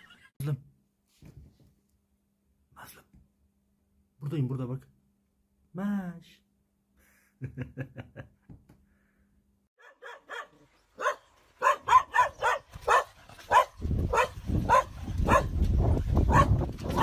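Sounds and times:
dog barking: 9.8s - 15.6s, 16.3s - 17.0s.

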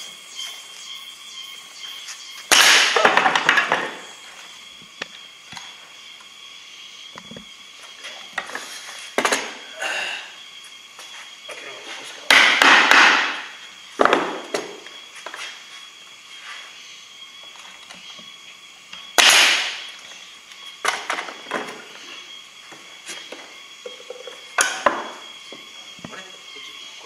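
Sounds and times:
nail gun bangs: 12.3s - 13.4s, 19.2s - 19.8s.

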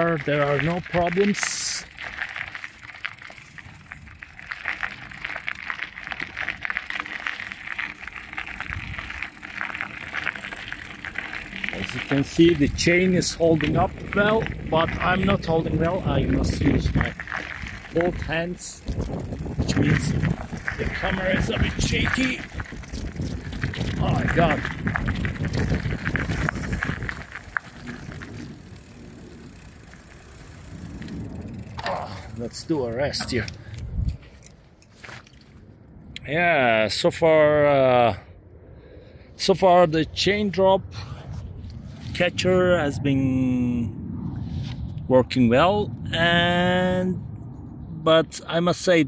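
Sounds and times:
bike tyre crunching on gravel: 0.0s - 35.7s
low rumble: 1.8s - 34.8s, 35.4s - 48.5s.

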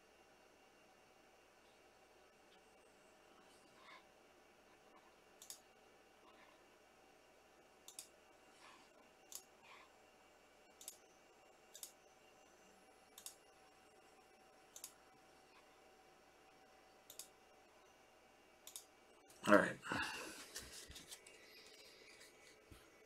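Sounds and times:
faint sharp clicks: 17.0s - 17.3s, 18.6s - 18.9s.

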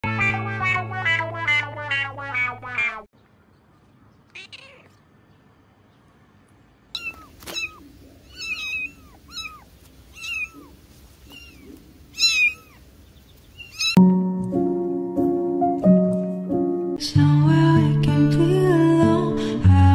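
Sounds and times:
piano music: 0.0s - 2.8s, 14.0s - 19.9s
kitten mewing: 0.1s - 3.1s, 4.3s - 5.0s, 7.0s - 12.8s, 13.6s - 14.0s.

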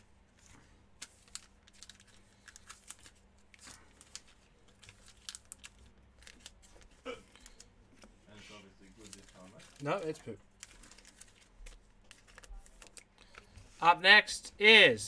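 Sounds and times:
packaging rustle: 0.4s - 8.1s, 8.8s - 13.6s.

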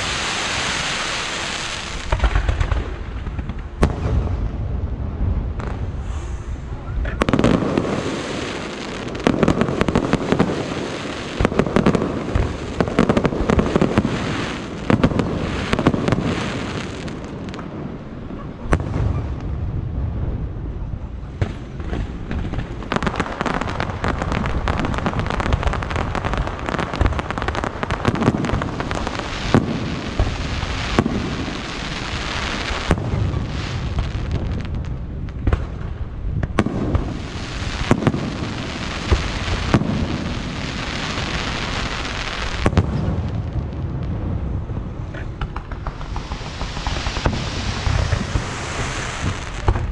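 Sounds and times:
firework crackling: 0.0s - 49.9s
firework shells booming: 1.4s - 4.6s, 21.4s - 43.6s, 44.5s - 49.9s.

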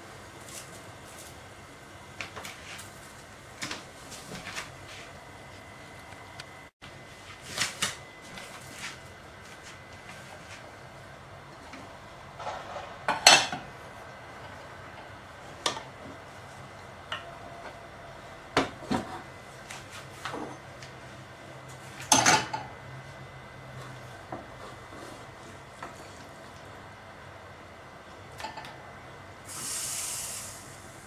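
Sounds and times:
pot and metal utensils clattering: 22.1s - 22.7s.

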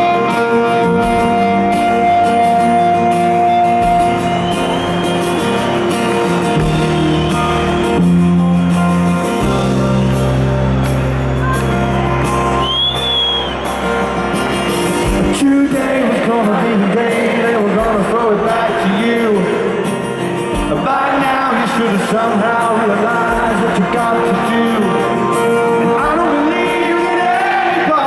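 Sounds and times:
live rock band playing: 0.0s - 28.0s
man singing: 15.2s - 20.0s, 20.6s - 28.0s.

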